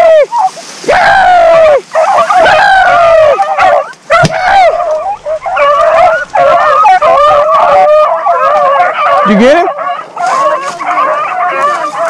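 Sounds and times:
hounds baying: 0.0 - 12.0
sharp crack: 4.0 - 7.3.

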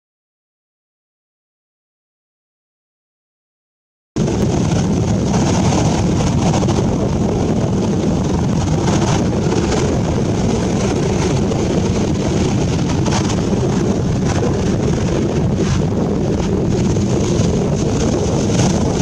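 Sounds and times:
ocean surf breaking: 4.2 - 19.0
wind buffeting microphone: 4.2 - 19.0.

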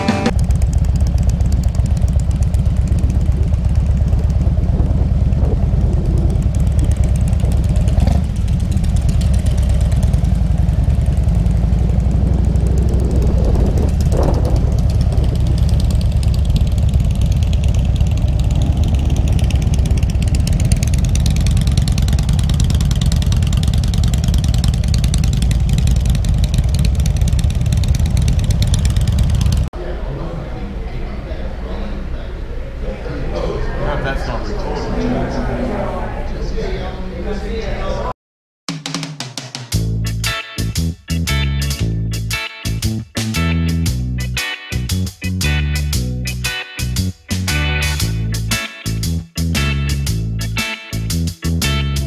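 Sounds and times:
motorcycle engine idling low: 0.0 - 29.7.

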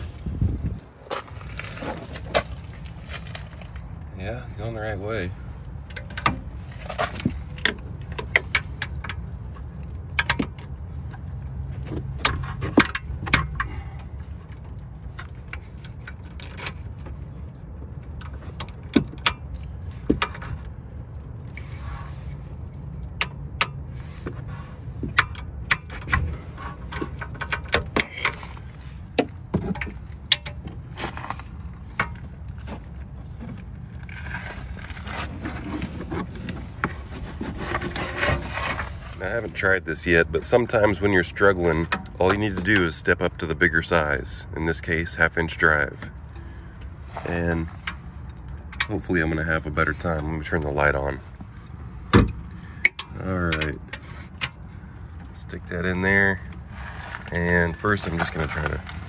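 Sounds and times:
steady low rumble: 0.0 - 59.0.

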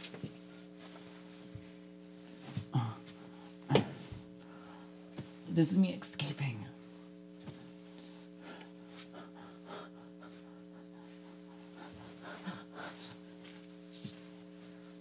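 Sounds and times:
electrical hum: 0.0 - 15.0
woman breathing and gasping: 8.0 - 13.3.

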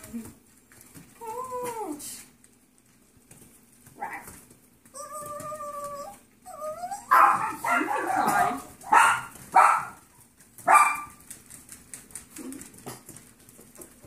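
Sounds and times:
puppies whining: 4.0 - 8.7
puppy barking harshly: 7.1 - 11.2.

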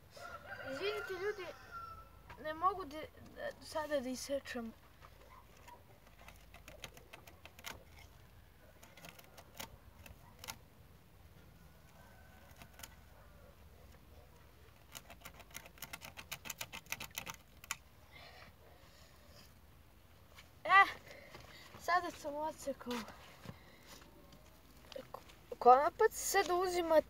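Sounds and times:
sharp clicks of cutting by hand: 6.0 - 10.6, 12.4 - 13.0, 14.7 - 17.9.

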